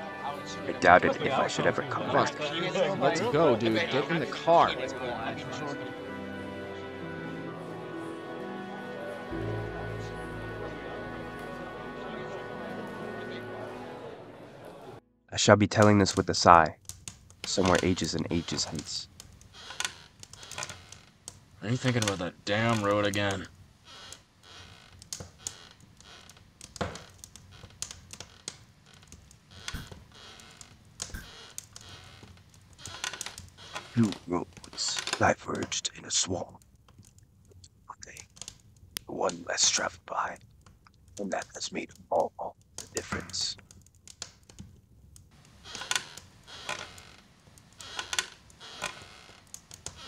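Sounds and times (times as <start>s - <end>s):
chair creaking: 15.8s - 50.0s.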